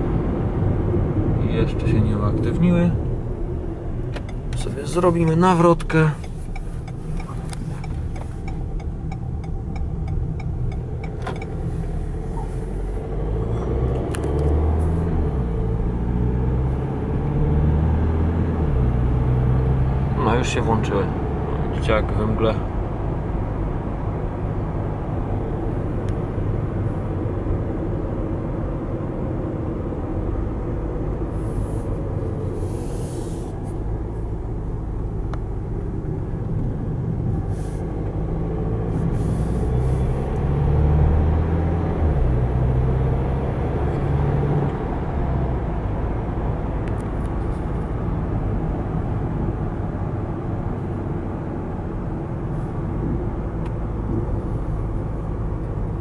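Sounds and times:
car engine and road noise: 0.0s - 56.0s.

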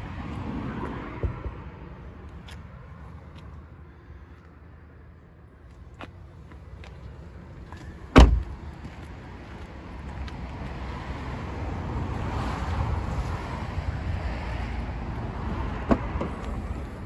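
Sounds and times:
outdoor background noise: 0.0s - 17.0s
car door thud: 8.1s - 8.6s.

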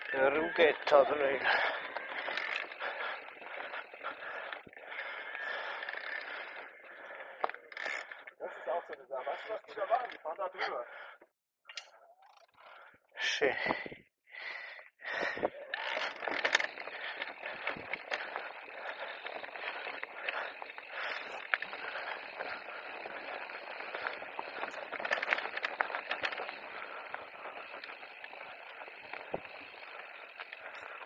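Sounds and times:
tyres rolling on stones: 0.0s - 8.2s, 15.1s - 31.0s
bike clicks and rattles: 0.0s - 31.0s.

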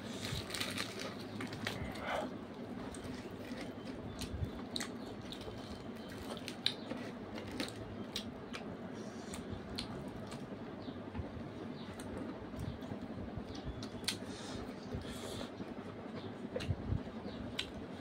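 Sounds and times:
people chewing and eating: 0.0s - 10.6s
steady low hum: 0.0s - 18.0s.

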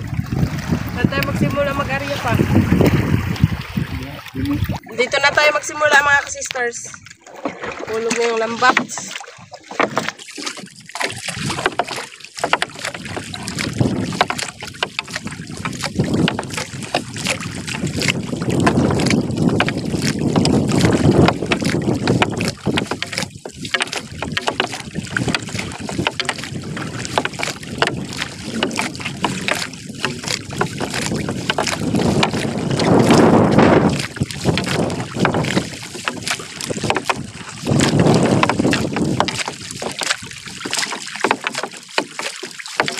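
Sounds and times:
wind buffeting microphone: 0.0s - 7.0s, 11.1s - 11.9s, 12.7s - 40.8s
water splashes: 0.0s - 42.9s
small knocks: 40.8s - 42.9s.

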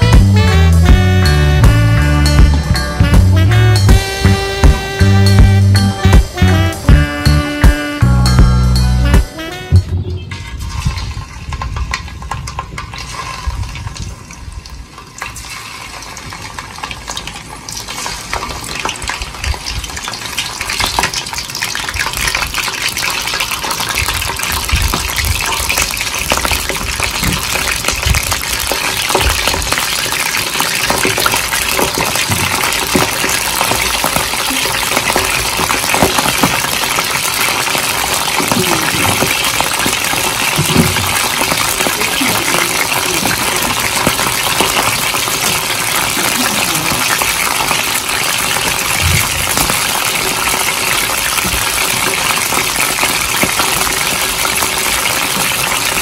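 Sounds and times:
deep-frying sizzle in oil: 10.5s - 56.0s.

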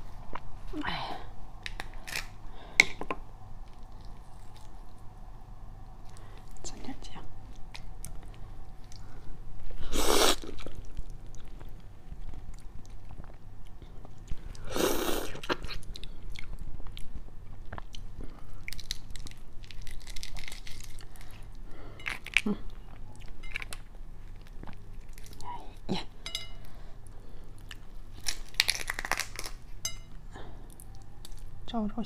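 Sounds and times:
shell crackling as peeled: 1.6s - 3.0s, 18.7s - 23.9s, 28.1s - 29.7s
biting and chewing shrimp: 7.6s - 25.5s, 27.5s - 29.8s.

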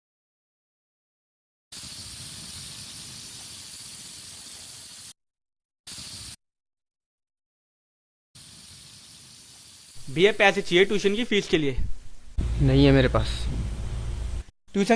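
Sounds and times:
compressed air hissing from hose: 1.8s - 5.2s, 5.9s - 6.4s, 8.4s - 11.2s.

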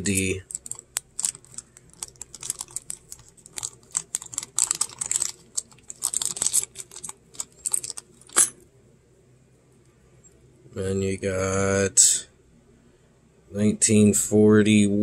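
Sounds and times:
coins clicking together: 0.0s - 8.6s
plastic bag crinkling: 0.1s - 8.4s.

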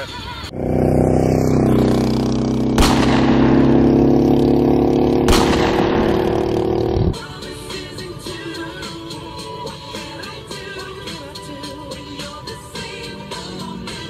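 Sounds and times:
low drone: 0.5s - 7.2s
sharp booms: 2.6s - 7.2s.

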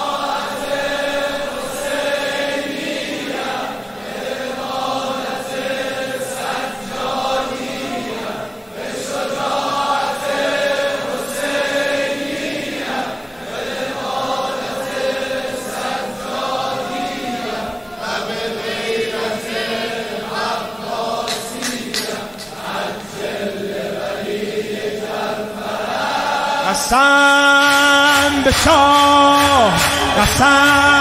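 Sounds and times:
crowd of men chanting: 0.0s - 31.0s.

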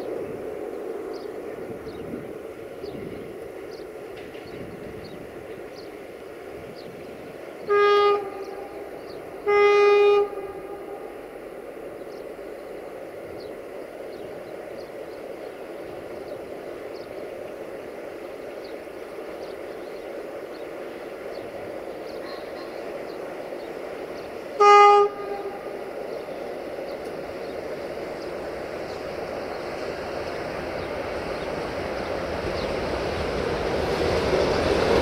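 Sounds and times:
train running: 0.0s - 35.0s
locomotive horn blasts: 7.6s - 11.1s, 24.6s - 26.0s.

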